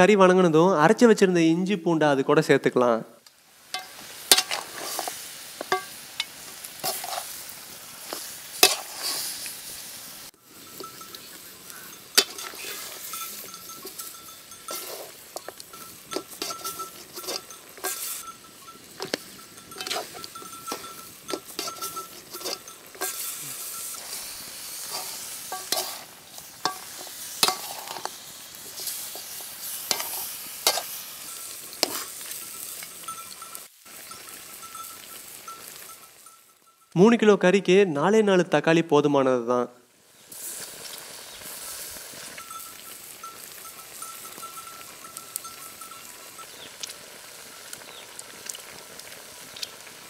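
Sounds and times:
pork sizzling in a pot: 3.2s - 37.2s, 39.9s - 50.0s
metal ladle scraping a pot: 3.7s - 7.4s, 8.1s - 9.4s, 10.7s - 33.6s.

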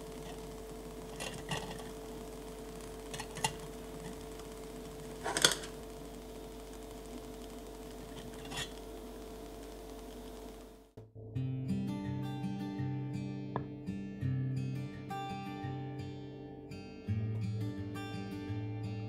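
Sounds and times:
faint steady hum: 0.0s - 11.0s
chopsticks tapping iron pot: 1.1s - 1.9s, 3.1s - 4.2s, 5.2s - 5.8s.

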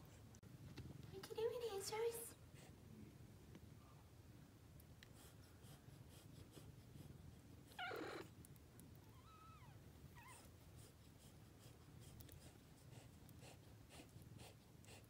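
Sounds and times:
cats purring: 4.8s - 15.0s
kitten squealing: 7.8s - 8.3s.

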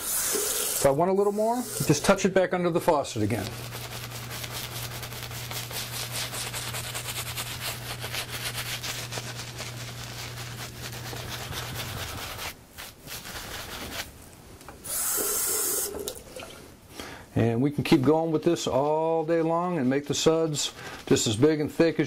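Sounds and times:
tap water running: 0.0s - 2.2s, 14.8s - 16.7s
shaving brush rubbing lather: 0.0s - 14.1s, 18.4s - 22.0s.

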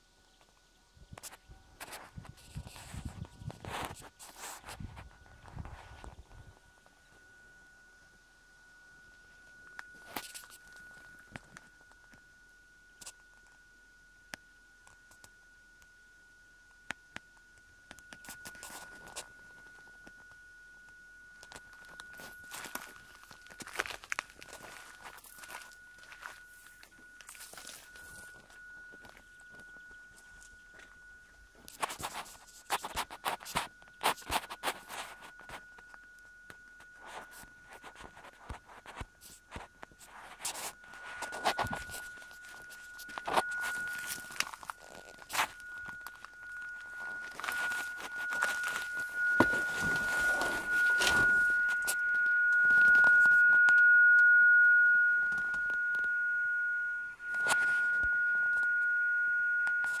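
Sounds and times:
thin high-pitched tone: 0.7s - 60.0s
rustling and crackling: 36.8s - 53.6s.

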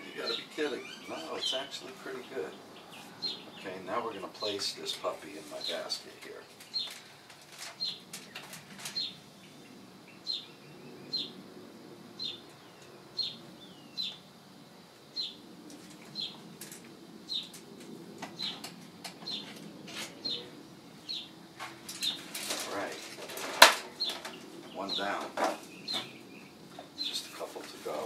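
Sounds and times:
bird chirping: 0.0s - 11.5s, 12.1s - 16.6s, 17.2s - 22.9s, 23.8s - 28.0s
wire basket rattling: 21.7s - 24.4s.

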